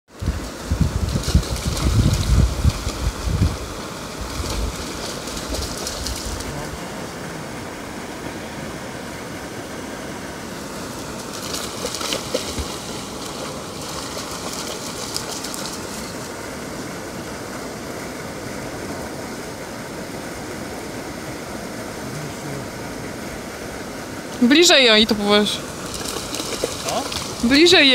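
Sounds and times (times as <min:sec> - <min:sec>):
steady rushing noise: 0:00.1 - 0:27.9
dogs splashing through water: 0:00.2 - 0:07.6, 0:10.5 - 0:16.4, 0:24.4 - 0:27.9.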